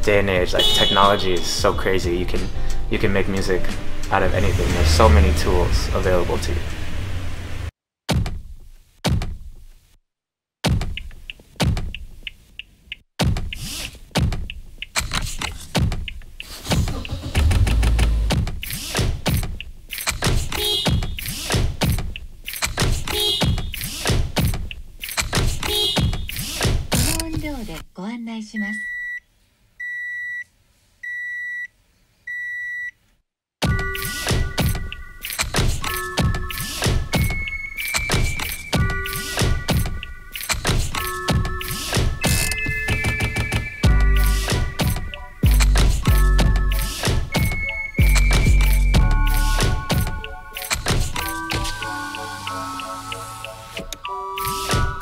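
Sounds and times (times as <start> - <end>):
vehicle electronic beeps: 0.6 - 1.7, 20.6 - 21.3, 28.6 - 29.2, 29.8 - 31.7, 32.3 - 33.0, 33.7 - 39.4, 42.2 - 44.8, 45.4 - 55.0
beat with drums and synth melody: 15.8 - 26.9, 33.6 - 55.0.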